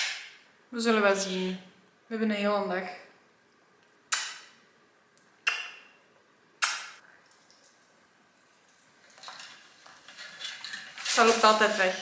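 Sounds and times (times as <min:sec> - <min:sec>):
kissing smacks: 0:04.1 - 0:04.4, 0:05.4 - 0:05.8, 0:06.6 - 0:07.0.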